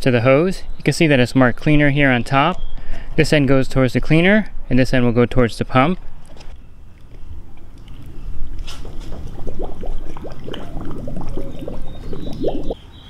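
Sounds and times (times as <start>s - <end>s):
water splashing and gurgling: 6.9s - 13.0s
air bubbling out underwater: 7.3s - 12.9s.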